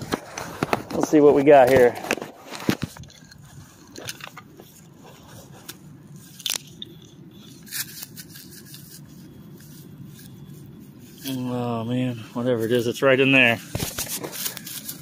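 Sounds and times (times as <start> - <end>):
probe scraping dry grass and leaves: 0.0 - 15.0.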